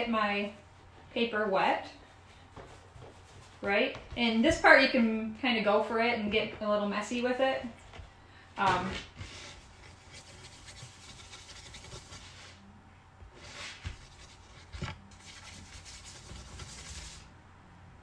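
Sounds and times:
paintbrush brushing paper: 2.0 - 3.8, 9.2 - 12.6, 13.4 - 17.3.

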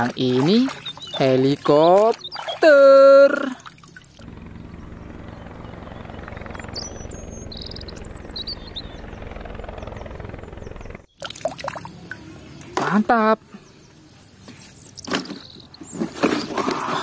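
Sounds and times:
helicopter rotor chopping: 4.2 - 11.1.

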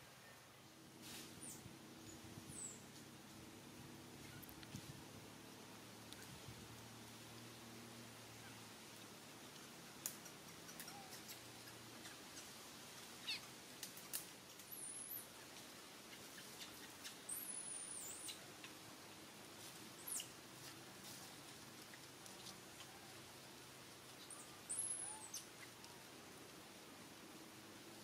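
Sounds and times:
animal squeaks and chirps: 13.2 - 13.5, 24.7 - 25.5.

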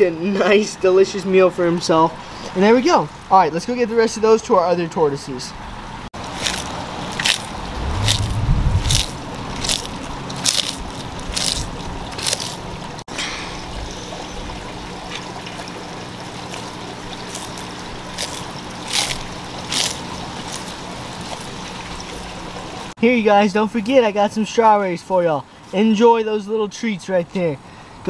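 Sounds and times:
tortoise crunching lettuce: 6.2 - 13.0, 16.4 - 22.4.

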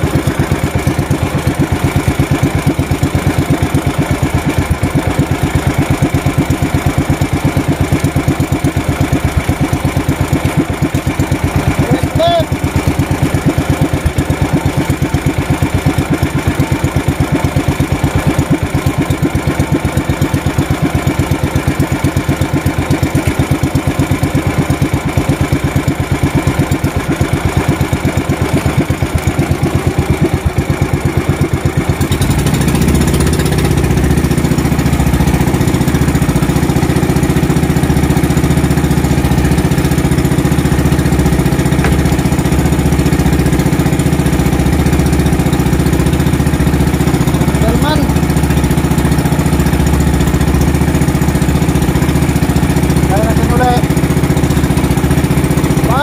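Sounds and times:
boat engine idling and revving: 0.0 - 56.0.

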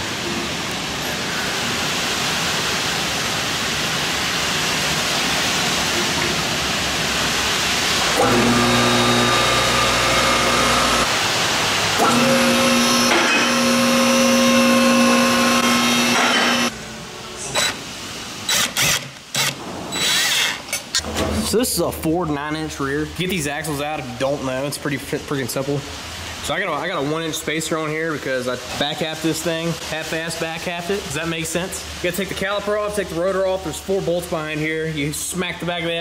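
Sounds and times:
steady rushing hiss: 0.0 - 20.9, 21.5 - 36.0
hydraulic pump motor humming: 8.1 - 11.2, 12.0 - 16.7
power tool bursts: 8.1 - 11.2, 12.0 - 16.7, 18.4 - 20.7.

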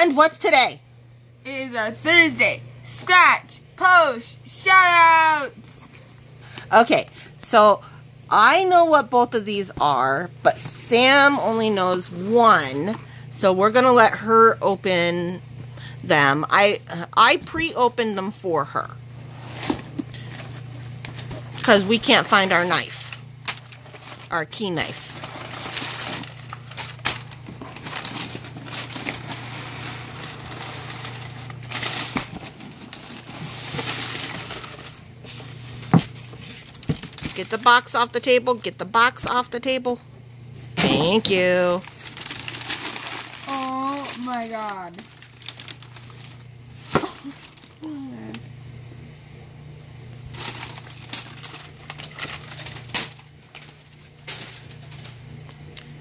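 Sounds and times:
packing paper crumpling: 22.5 - 37.8, 41.6 - 47.9, 50.3 - 55.2.

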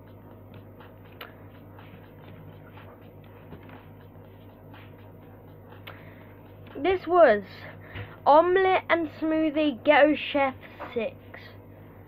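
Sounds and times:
low electrical hum: 0.0 - 12.0
soft rustles and taps: 2.3 - 3.9.

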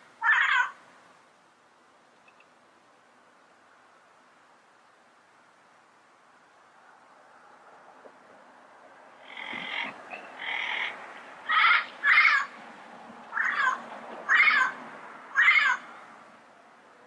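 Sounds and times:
parrot squawking: 0.2 - 0.8, 9.2 - 12.6, 13.3 - 15.9.

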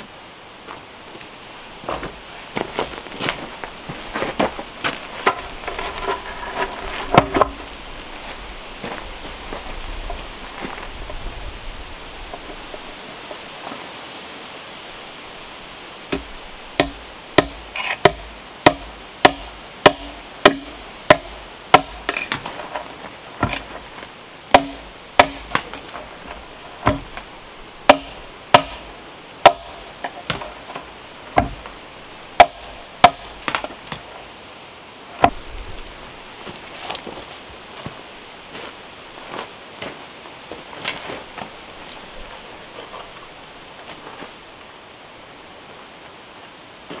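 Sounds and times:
hammer striking wood: 16.1 - 22.4, 24.5 - 25.6, 26.8 - 27.1, 27.9 - 30.4, 31.4 - 31.6, 32.4 - 33.6.

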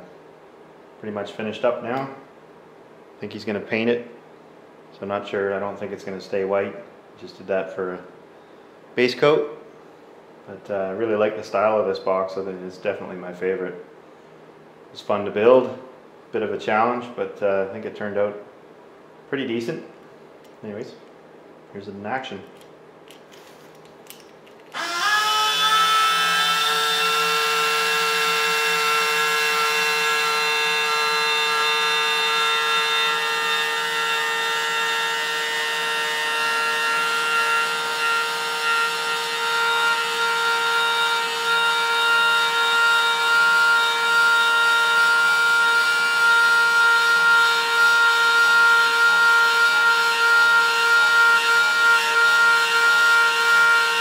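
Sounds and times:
electric lift motor whining: 24.7 - 54.0.

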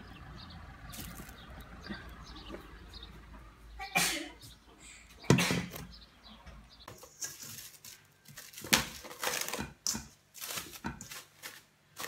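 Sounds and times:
cling film crinkling: 7.0 - 9.7, 10.3 - 12.0.

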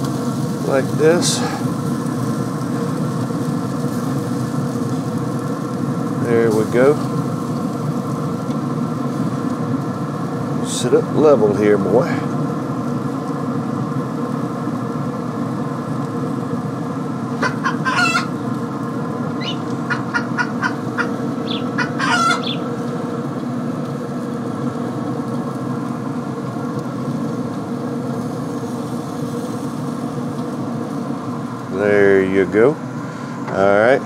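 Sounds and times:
mechanical hum: 0.0 - 34.0
bird calls: 17.4 - 18.4, 19.4 - 22.7.

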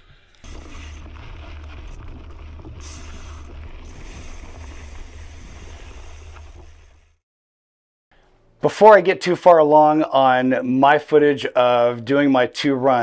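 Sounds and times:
bike tyres on dirt trail: 0.0 - 7.2.

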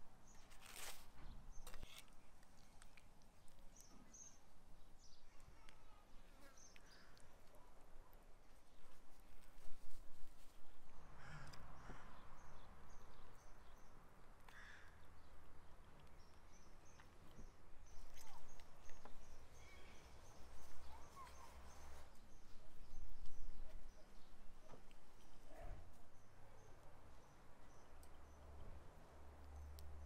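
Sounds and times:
birds chirping: 0.2 - 9.0, 11.5 - 30.0.

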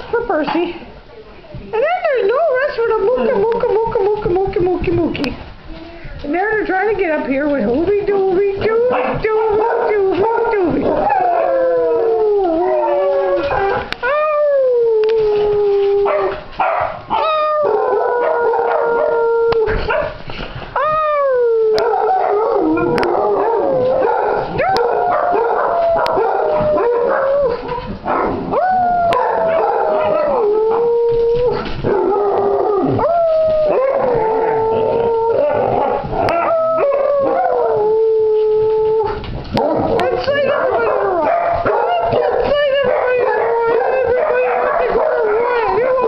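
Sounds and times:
hounds howling: 8.6 - 20.2, 20.8 - 46.0.

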